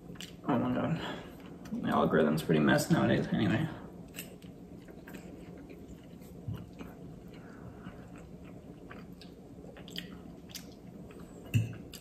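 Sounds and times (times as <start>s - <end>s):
person chewing pasta: 0.0s - 0.4s, 3.9s - 12.0s.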